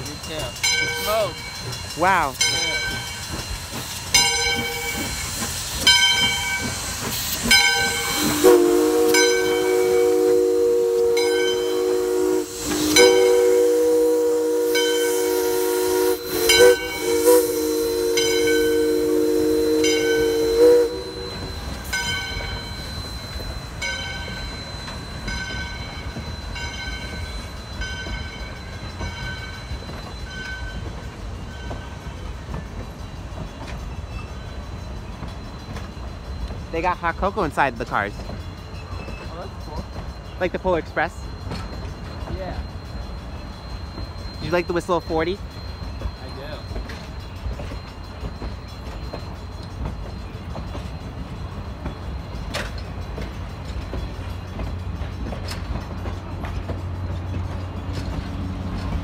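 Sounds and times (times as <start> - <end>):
locomotive bell ringing: 0.0 - 59.0
steam hissing: 0.0 - 59.0
train rumbling past: 0.0 - 59.0
steam whistle chord: 7.8 - 21.8.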